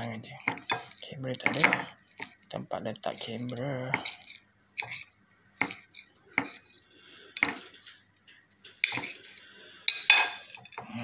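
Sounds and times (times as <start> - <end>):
knife clinking on glass plate: 9.9 - 10.9.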